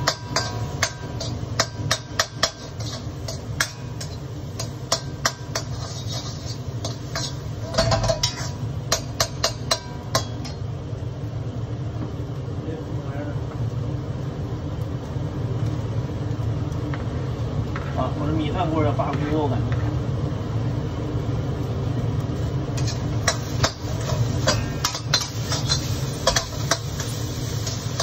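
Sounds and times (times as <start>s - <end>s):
metal spatula clinking on wok: 0.0s - 10.6s
steady low hum: 0.0s - 28.0s.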